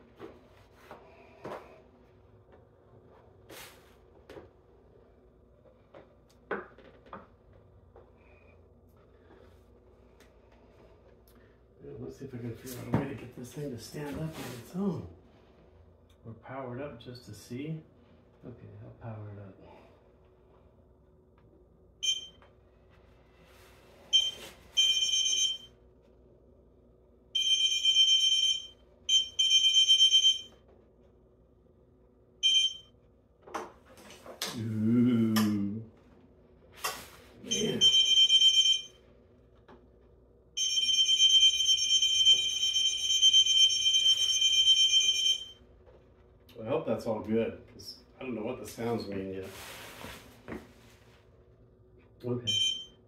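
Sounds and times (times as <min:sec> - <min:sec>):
high-pitched warning beep: 0:22.0 - 0:22.4, 0:24.1 - 0:25.7, 0:32.4 - 0:32.9, 0:37.5 - 0:38.9, 0:52.5 - 0:53.0.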